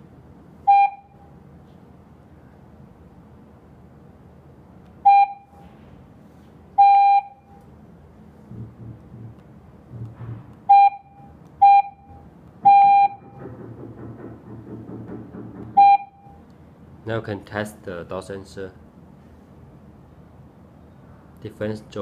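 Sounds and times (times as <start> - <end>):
keypad beeping: 0.7 - 1.1, 5.1 - 5.5, 10.7 - 13.4, 15.8 - 16.4.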